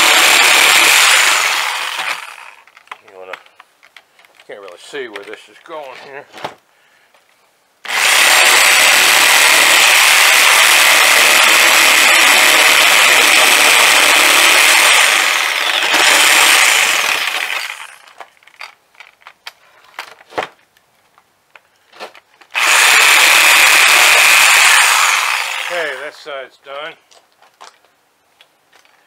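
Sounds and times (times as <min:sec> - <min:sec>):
reciprocating saw cutting wood: 0:00.0 - 0:02.6, 0:07.9 - 0:18.1, 0:22.6 - 0:26.2.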